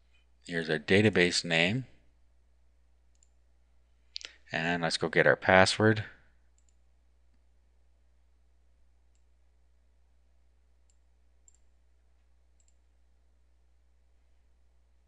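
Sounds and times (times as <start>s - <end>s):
computer mouse clicks: 3.1s - 3.4s, 6.6s - 7.4s, 10.8s - 11.7s, 12.6s - 12.8s.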